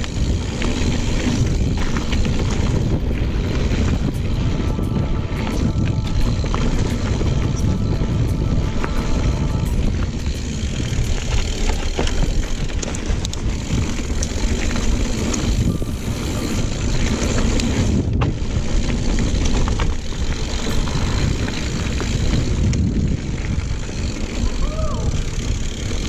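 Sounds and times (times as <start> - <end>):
bike clicks and rattles: 0.0 - 26.0
wind rumble on microphone: 0.0 - 26.0
tyres hissing on dirt: 14.3 - 17.9.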